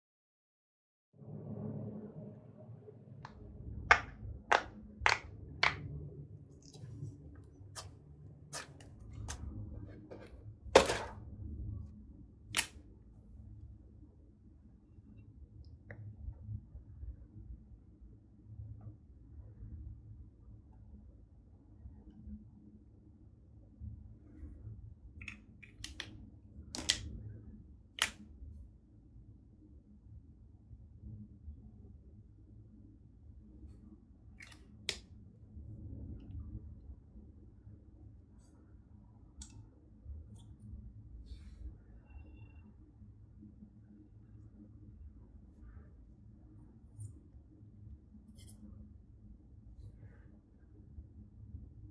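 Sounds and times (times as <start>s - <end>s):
low steady hum: 1.2s - 51.9s
plastic marker cap clicks: 25.2s - 26.1s, 26.8s - 27.0s, 28.0s - 28.2s.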